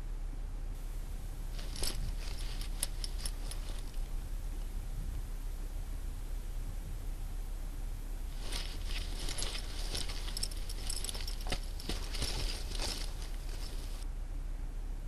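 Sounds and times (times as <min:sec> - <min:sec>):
metal chain strap jingling: 0:01.6 - 0:04.2, 0:08.3 - 0:14.0.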